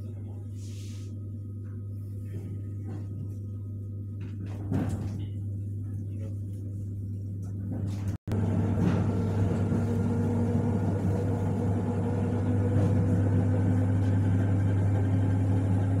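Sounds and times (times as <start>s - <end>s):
electric train hum: 6.8s - 16.0s.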